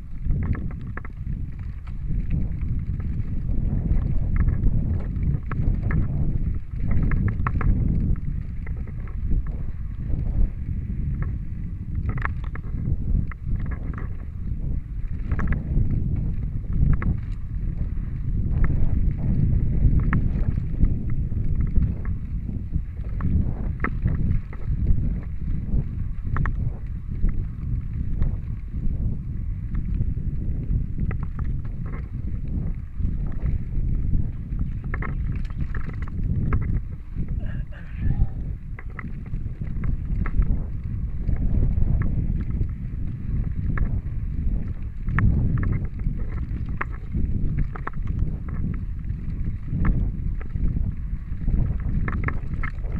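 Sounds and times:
bike clicks and rattles: 0:00.0 - 0:52.9
mountain bike rolling on dirt: 0:00.0 - 0:52.9
wind buffeting microphone: 0:00.0 - 0:52.9
tyres rumbling over dirt: 0:30.6 - 0:42.7.

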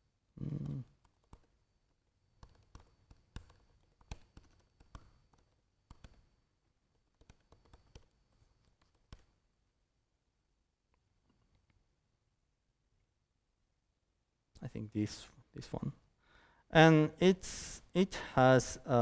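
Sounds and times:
laptop keyboard typing: 0:00.5 - 0:09.4.

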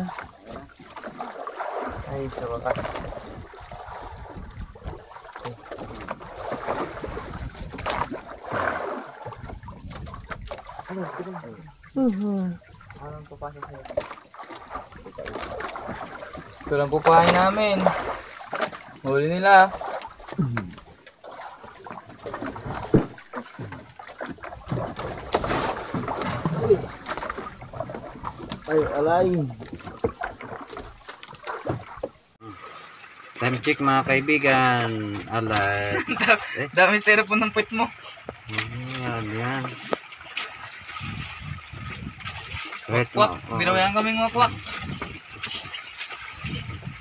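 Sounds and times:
boat low rumble: 0:00.0 - 0:47.0
sea noise: 0:00.0 - 0:47.0
wind: 0:00.0 - 0:47.0
knocks and clatter aboard: 0:04.1 - 0:10.9, 0:21.6 - 0:32.2.

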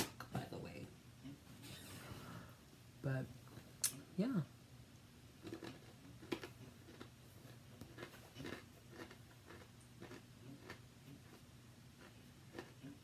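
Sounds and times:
cookie being bitten and chewed: 0:05.3 - 0:13.0.

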